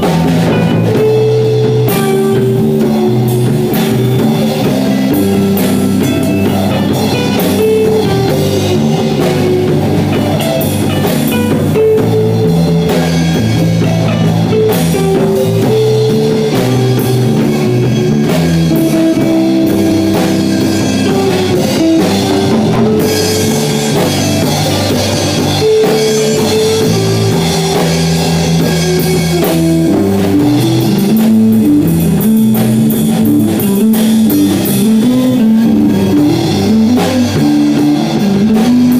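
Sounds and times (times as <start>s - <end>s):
drum kit: 0.0s - 38.9s
electric guitars playing: 0.0s - 38.9s.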